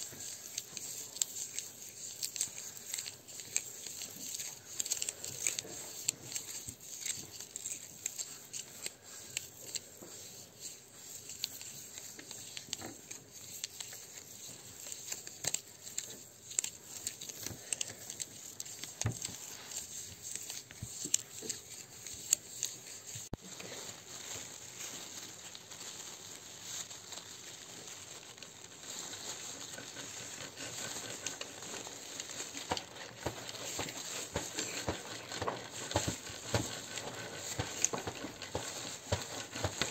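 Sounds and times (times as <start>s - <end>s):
rustling and crinkling: 0.0s - 39.9s.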